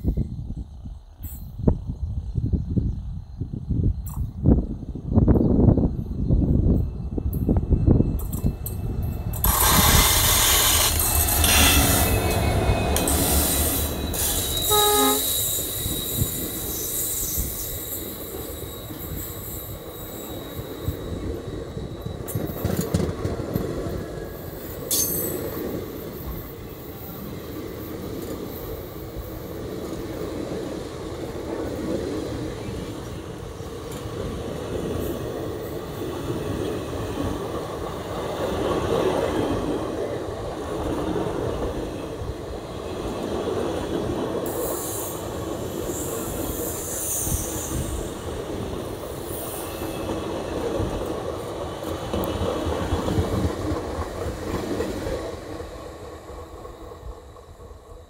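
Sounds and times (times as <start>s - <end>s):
train wheels clattering over rail joints: 8.1s - 18.3s, 22.0s - 26.6s
locomotive engine rumbling: 8.5s - 16.5s
short pitched tone: 11.7s - 15.5s.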